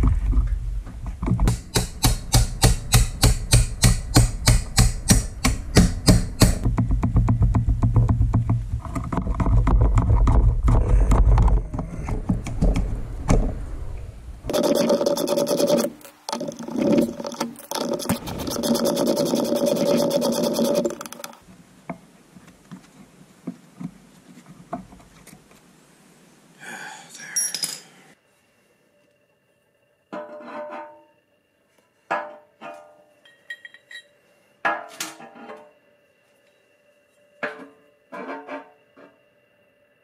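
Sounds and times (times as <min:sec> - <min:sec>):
metal tools clinking: 0:27.3 - 0:28.0, 0:33.2 - 0:34.1.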